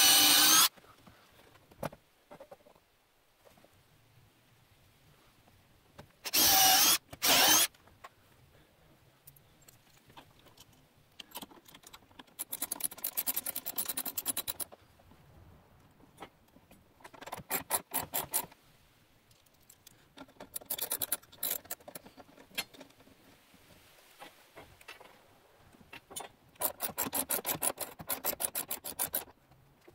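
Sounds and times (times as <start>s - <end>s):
cordless drill drilling: 0.0s - 0.7s, 6.3s - 7.7s.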